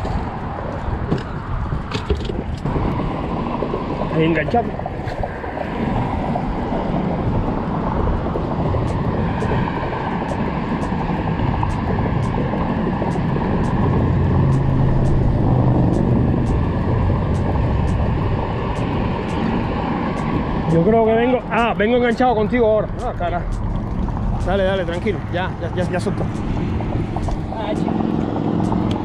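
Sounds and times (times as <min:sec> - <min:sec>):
road traffic rushing: 0:00.0 - 0:29.0
faint regular ticks: 0:07.4 - 0:20.5, 0:23.0 - 0:25.1, 0:25.8 - 0:29.0.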